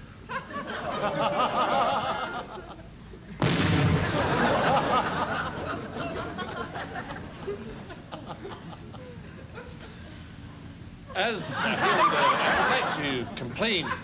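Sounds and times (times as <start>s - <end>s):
explosion: 3.4s - 4.5s.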